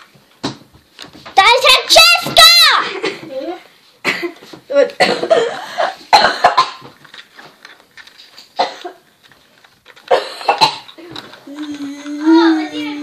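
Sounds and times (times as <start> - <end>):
child coughing: 2.8 - 4.4, 5.0 - 6.9, 8.6 - 9.0, 10.1 - 11.1.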